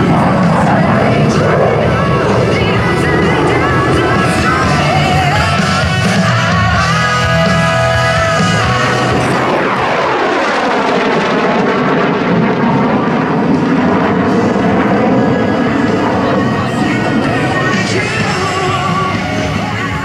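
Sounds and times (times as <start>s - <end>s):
music: 0.0s - 10.1s, 14.2s - 20.0s
jet fighter passing: 0.0s - 20.0s.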